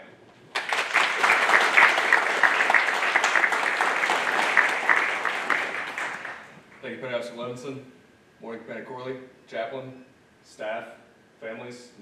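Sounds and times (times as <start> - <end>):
audience applauding: 0.5 - 6.6.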